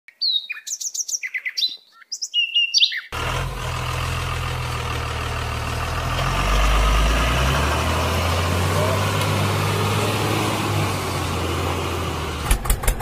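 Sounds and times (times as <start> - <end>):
small birds chirping: 0.1 - 3.2
truck engine idling: 3.2 - 13.0.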